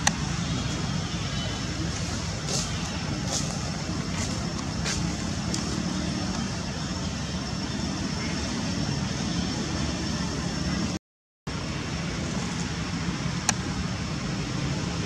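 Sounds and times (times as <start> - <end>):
outdoor background rumble: 0.0 - 15.0.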